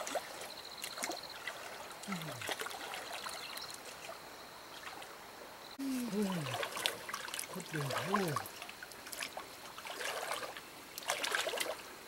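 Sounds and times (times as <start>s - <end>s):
water splashing: 0.0s - 5.2s, 5.8s - 12.0s
stream water sloshing and trickling: 0.0s - 12.0s
person vocal sound: 5.8s - 6.6s, 7.6s - 8.4s.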